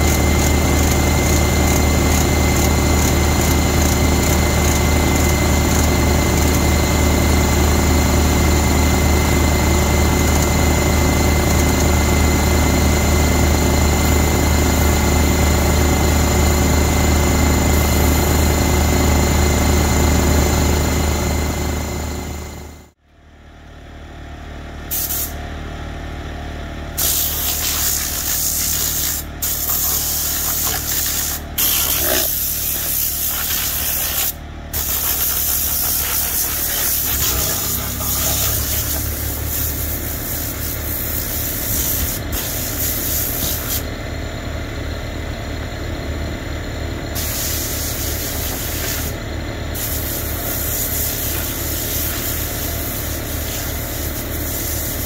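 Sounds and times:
hissing spray bursts: 24.9 - 25.4, 27.0 - 43.8, 47.2 - 49.2, 49.8 - 55.0
engine hum: 34.7 - 54.3.

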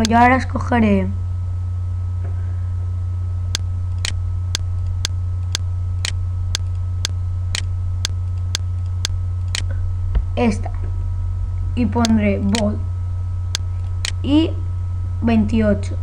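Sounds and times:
low electrical hum: 0.0 - 16.0
sharp ticks: 3.5 - 9.7, 12.0 - 12.8, 13.5 - 14.2.

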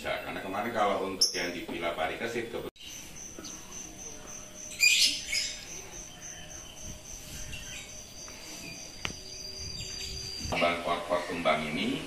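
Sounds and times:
birds chirping: 0.0 - 12.0
high-pitched pulsing trill: 3.0 - 10.6.

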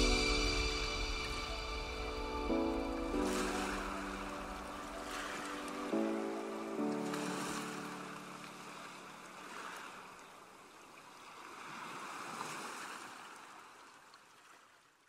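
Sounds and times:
ocean waves washing: 0.0 - 10.5.

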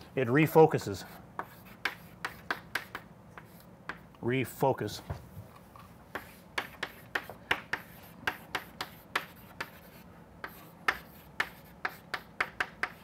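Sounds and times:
chalk writing on chalkboard: 0.8 - 4.0, 6.1 - 13.0.

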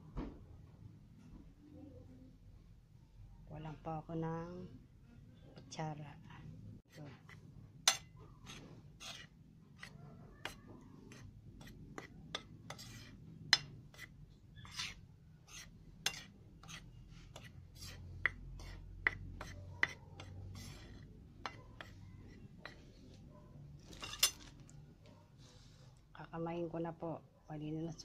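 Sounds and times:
spoon scraping through powder: 6.9 - 23.0
spoon clinking on ceramic plate: 23.9 - 24.5.

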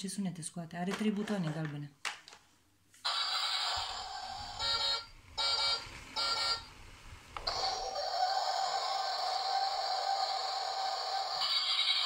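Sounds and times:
electronic alarm tone: 3.1 - 6.7.

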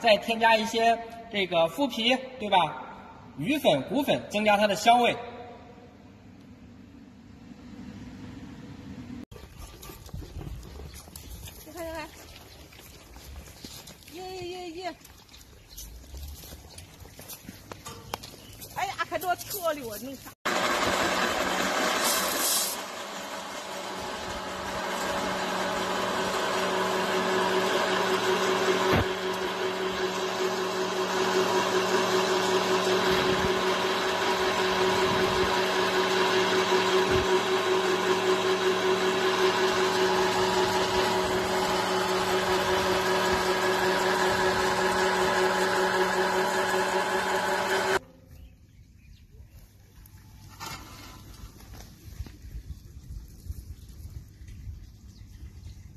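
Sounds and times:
electric pellet mill running: 20.5 - 48.0.

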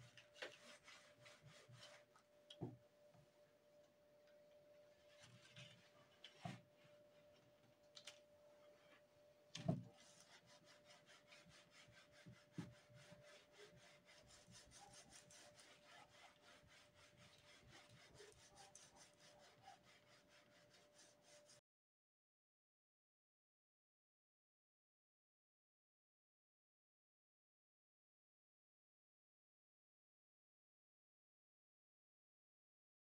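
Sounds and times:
wax block scraping on planer: 0.2 - 2.1, 10.0 - 21.6.

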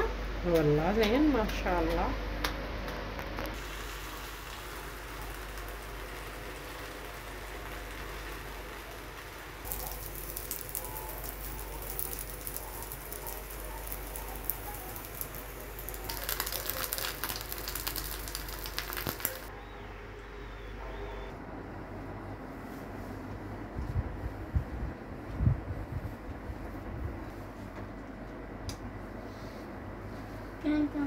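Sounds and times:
egg frying: 3.2 - 19.5
food sizzling on a griddle: 3.6 - 19.5.

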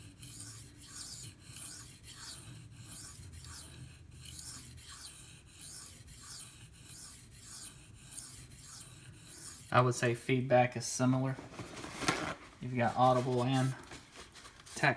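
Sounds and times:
knife scraping on sharpening stone: 0.0 - 9.7.

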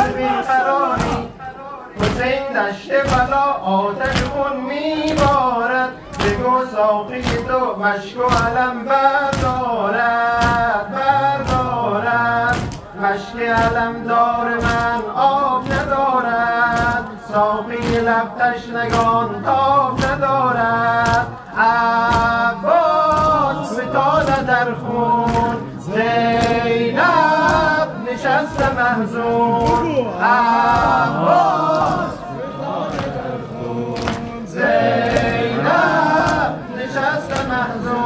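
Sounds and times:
men singing a lament together: 0.0 - 38.0
hands striking chests: 5.0 - 5.4, 6.1 - 6.6, 7.2 - 7.6, 9.2 - 9.7, 10.3 - 11.8, 12.4 - 12.9, 13.5 - 14.0, 14.6 - 16.0, 16.6 - 17.1, 17.7 - 18.2, 18.8 - 19.2, 19.9 - 20.3, 20.9 - 21.4, 22.0 - 22.5, 23.1 - 24.6, 25.2 - 25.7, 26.3 - 26.8, 29.6 - 30.0, 30.6 - 32.2, 32.9 - 33.2, 34.0 - 34.4, 35.0 - 35.5, 37.2 - 37.6.

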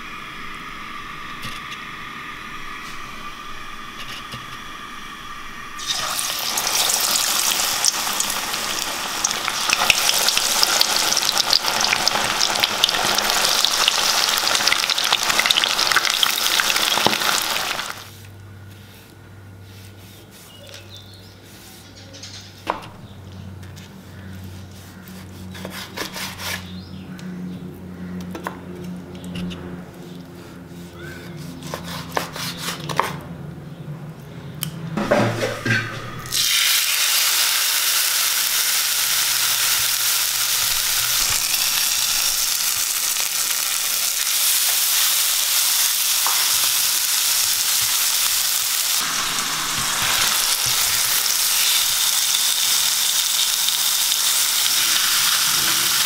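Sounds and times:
low hum: 0.0 - 10.6
meat sizzling in oil: 5.8 - 18.1, 36.3 - 56.0
knife slicing meat on board: 31.6 - 33.2.

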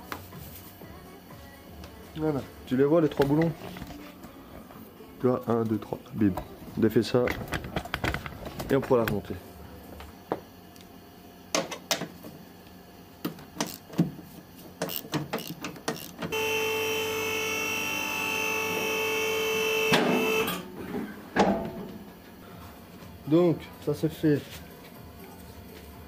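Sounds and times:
steady mechanical whine: 14.8 - 25.2.

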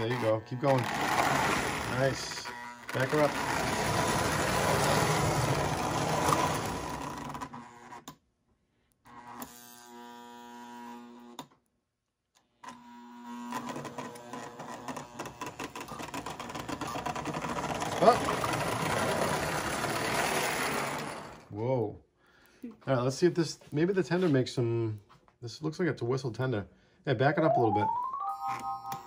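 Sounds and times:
toy train motor whirring and rattling: 0.0 - 8.1, 12.6 - 21.5
toy train wheels clicking: 14.8 - 21.4.

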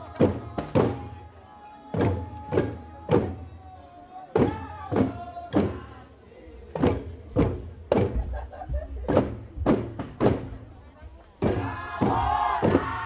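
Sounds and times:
drum beat: 0.0 - 1.1, 4.4 - 5.8, 6.8 - 10.6, 11.4 - 13.0.

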